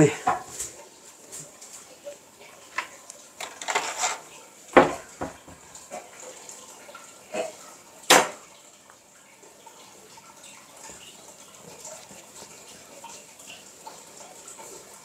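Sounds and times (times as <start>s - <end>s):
kitchen utensils clattering: 0.0s - 0.8s, 2.7s - 5.6s.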